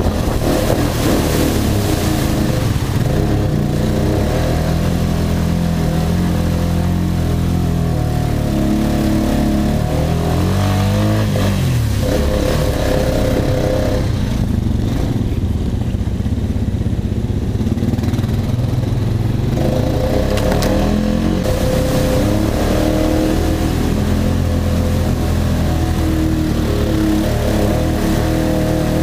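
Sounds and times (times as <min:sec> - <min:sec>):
atv engine running: 0:00.0 - 0:29.0.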